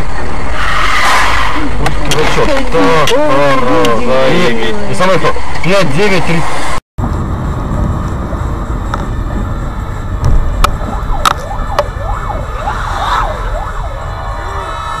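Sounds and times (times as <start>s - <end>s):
road rumble: 0.0s - 15.0s
fire engine siren wailing: 10.6s - 15.0s.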